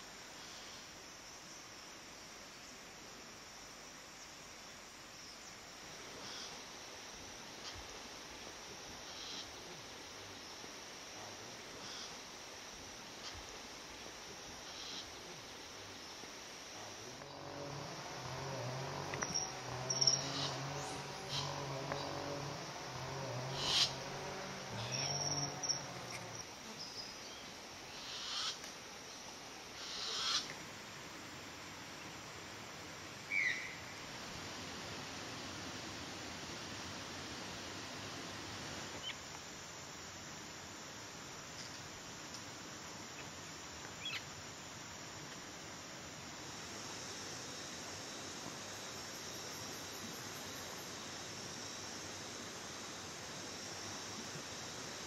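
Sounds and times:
background hiss: 0:00.0 - 0:55.0
forest insect drone: 0:00.0 - 0:55.0
low hooting call: 0:16.9 - 0:26.4
rising buzzy swells: 0:17.0 - 0:26.5.

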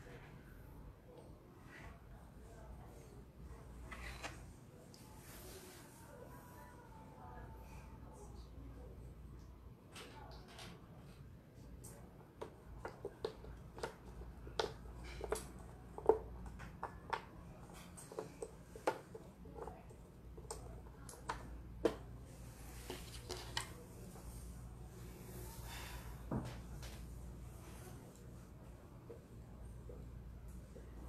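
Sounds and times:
soft rustle: 0:03.6 - 0:06.8.

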